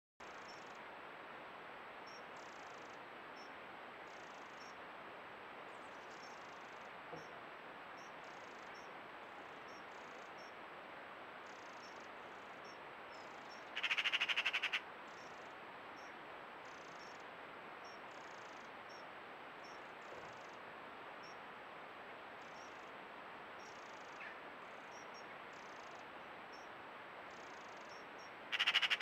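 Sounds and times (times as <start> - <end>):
microphone hiss: 0.2 - 29.0
bird rapid chattering call: 13.4 - 15.4, 27.3 - 29.0.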